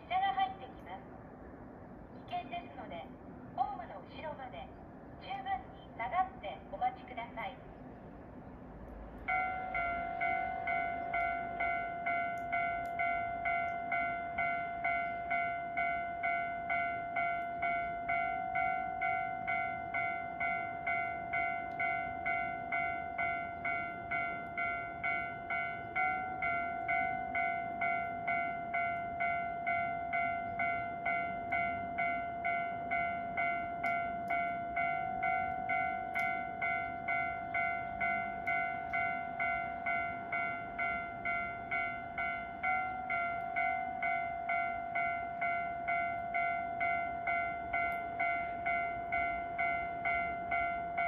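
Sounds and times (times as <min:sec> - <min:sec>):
electronic railway warning bell: 0:09.2 - 0:51.0.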